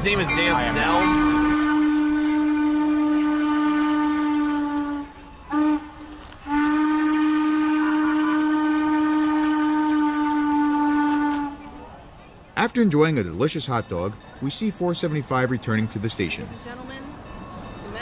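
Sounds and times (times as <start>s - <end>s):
steam locomotive whistle: 1.0s - 12.0s.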